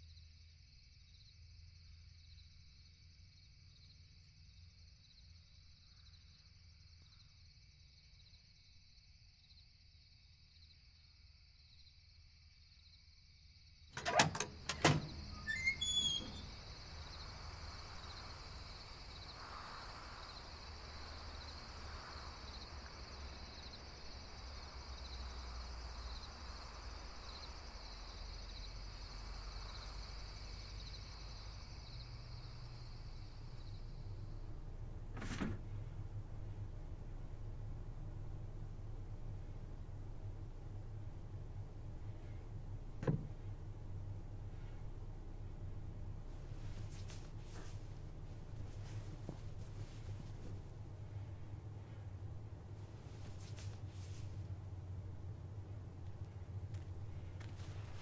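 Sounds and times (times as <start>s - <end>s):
crickets chirping: 0.0s - 58.0s
latch clicks: 14.0s - 16.5s
wooden shutter creaking open: 14.0s - 18.2s, 34.9s - 36.1s, 42.9s - 43.7s.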